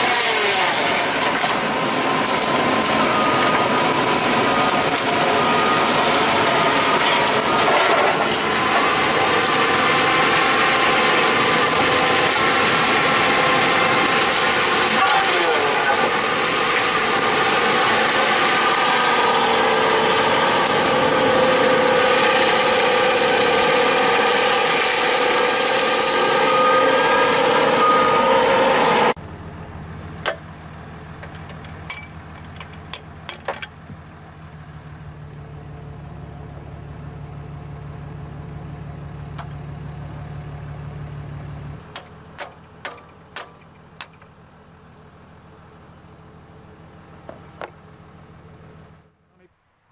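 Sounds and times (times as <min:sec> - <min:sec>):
tree-felling machine sawing: 0:00.0 - 0:32.4.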